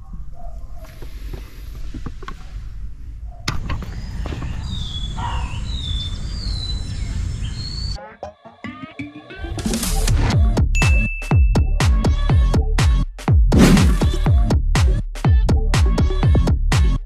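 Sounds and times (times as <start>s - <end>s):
birds chirping: 3.6s - 8.0s.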